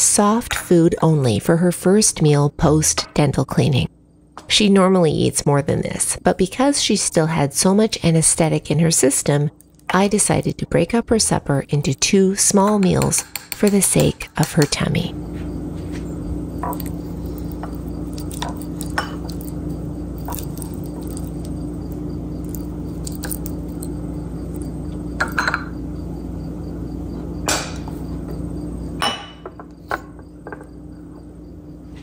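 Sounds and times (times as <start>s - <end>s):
low hum: 14.8s - 29.0s.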